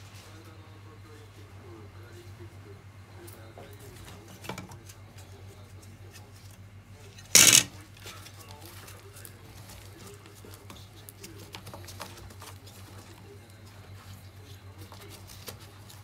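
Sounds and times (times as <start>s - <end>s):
fingers scraping plastic: 7.2s - 8.2s.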